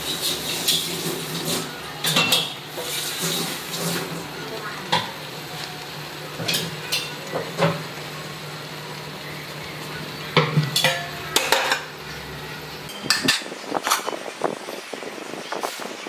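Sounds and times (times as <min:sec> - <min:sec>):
metal cookware clinking: 0:00.0 - 0:04.0, 0:06.4 - 0:07.8, 0:10.4 - 0:12.0, 0:12.9 - 0:14.2.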